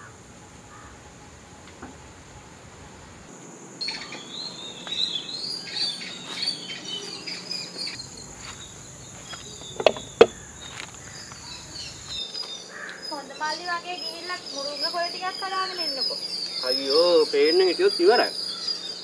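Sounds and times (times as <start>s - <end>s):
birds chirping and warbling: 0.0s - 19.0s
high insect drone: 0.0s - 19.0s
sharp knocks: 9.8s - 10.4s.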